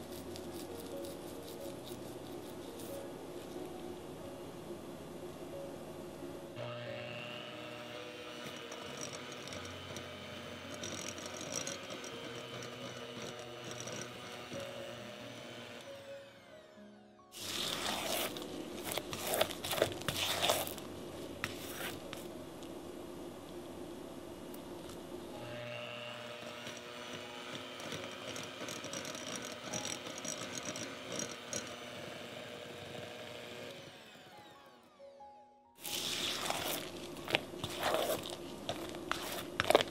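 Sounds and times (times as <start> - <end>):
electric hand mixer running: 6.6 - 20.8, 25.4 - 35.0, 35.8 - 39.9
beaters clicking on glass bowl: 27.6 - 31.9.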